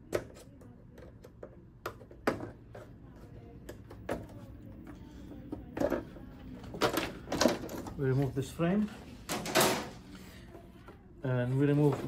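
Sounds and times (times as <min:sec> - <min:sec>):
hard plastic parts clicking and knocking: 0:05.5 - 0:08.0.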